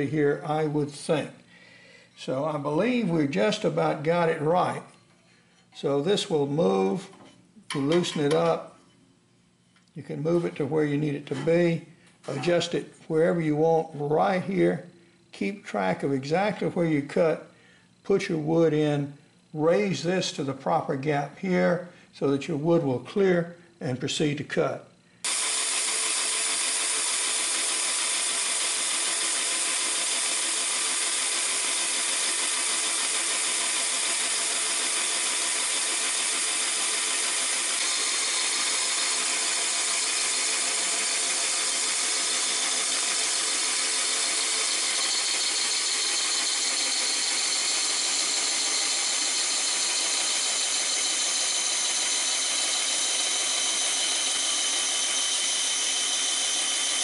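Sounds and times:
bandsaw cutting log: 0:25.2 - 0:57.0.

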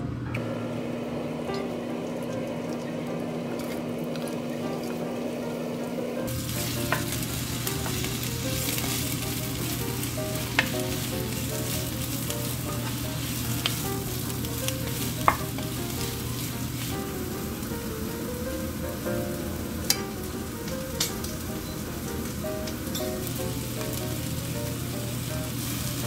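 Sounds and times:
food sizzling in a frying pan: 0:06.3 - 0:26.0
spatula knocking on pan: 0:15.2 - 0:15.7.

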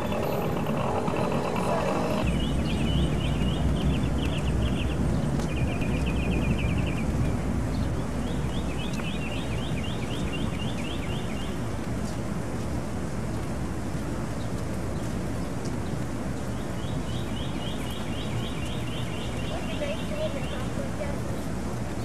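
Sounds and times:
steady low rumble: 0:00.0 - 0:14.1.

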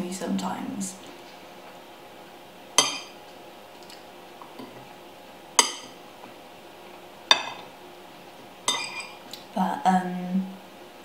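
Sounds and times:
fork clinking on plate: 0:08.7 - 0:09.2.

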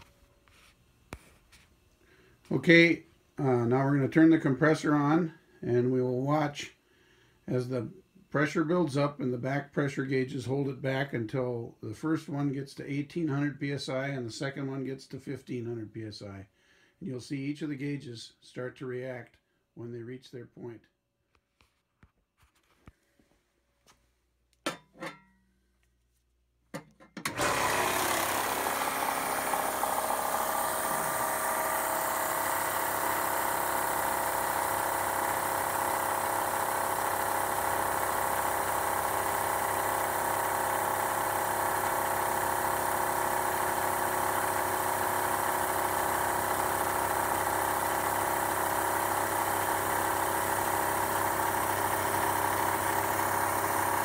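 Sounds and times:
electric compressor running: 0:27.3 - 0:54.0.

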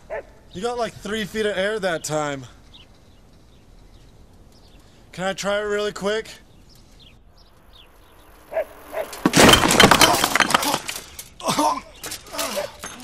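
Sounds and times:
bicycle crashing clatter: 0:08.4 - 0:13.0.

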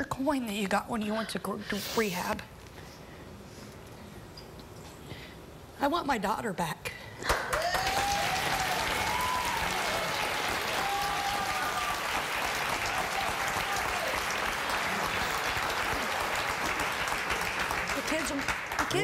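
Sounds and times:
audience applauding: 0:07.3 - 0:19.0.

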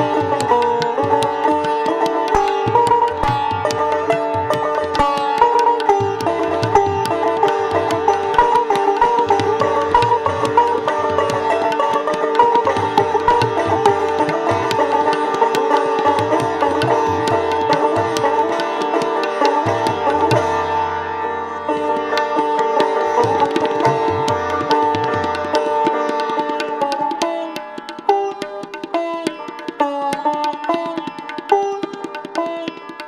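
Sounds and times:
plucked sitar melody: 0:00.0 - 0:33.0
tabla strokes: 0:00.0 - 0:33.0.

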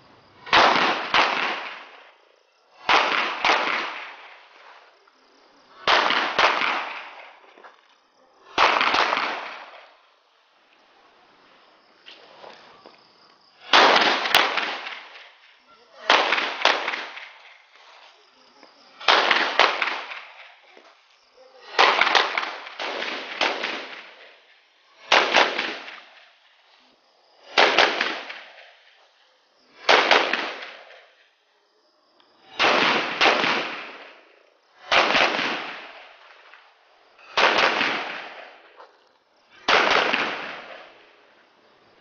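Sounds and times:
gunshots: 0:00.4 - 0:02.0, 0:02.8 - 0:04.4, 0:05.8 - 0:07.4, 0:08.6 - 0:10.0, 0:13.6 - 0:15.4, 0:16.0 - 0:17.6, 0:19.0 - 0:20.5, 0:21.7 - 0:24.4, 0:25.0 - 0:26.2, 0:27.4 - 0:28.6, 0:29.8 - 0:31.1, 0:32.5 - 0:36.6, 0:37.2 - 0:38.6, 0:39.6 - 0:41.0.

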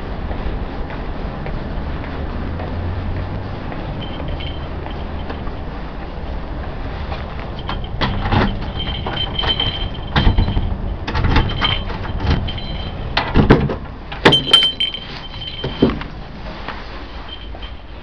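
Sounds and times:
keys and lock clicking and rattling: 0:04.0 - 0:05.6, 0:07.4 - 0:13.2, 0:14.2 - 0:16.1.

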